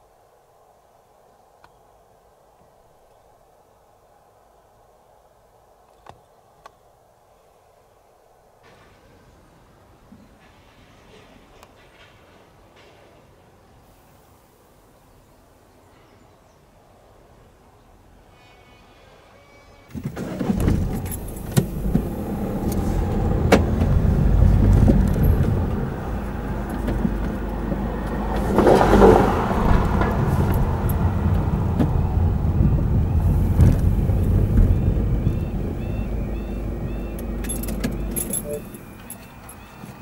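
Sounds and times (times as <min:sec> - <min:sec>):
car engine and tyre rumble: 0:19.9 - 0:40.0.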